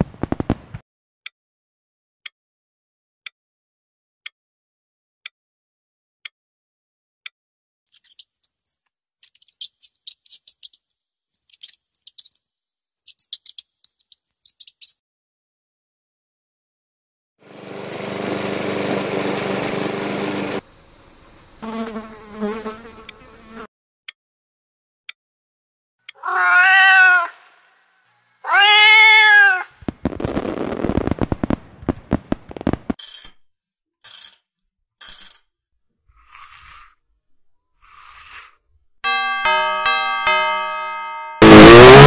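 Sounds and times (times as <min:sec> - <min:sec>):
short high squeaks: 0:07.9 - 0:10.8, 0:13.0 - 0:15.0
cat meows: 0:26.1 - 0:27.8, 0:28.4 - 0:29.8.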